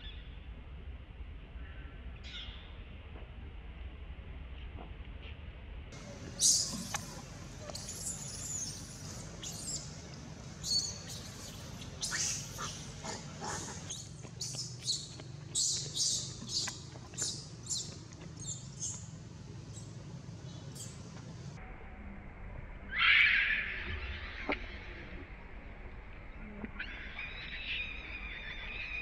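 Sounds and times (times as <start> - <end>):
baby monkey squealing: 6.3 - 9.9, 10.6 - 17.9.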